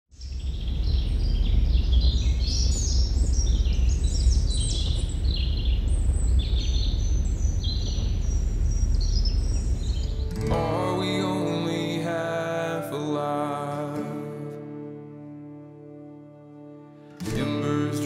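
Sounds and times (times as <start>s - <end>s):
low rumble: 0.1s - 12.5s
small birds singing: 0.1s - 14.8s.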